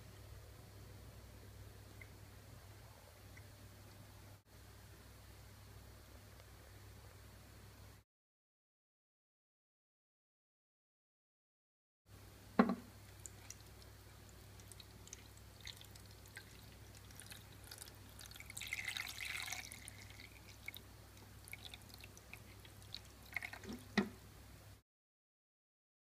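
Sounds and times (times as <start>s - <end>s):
sharp knock: 12.6s - 12.9s
water drips and splashes: 13.1s - 24.1s
water pouring into plastic jug: 14.6s - 24.0s.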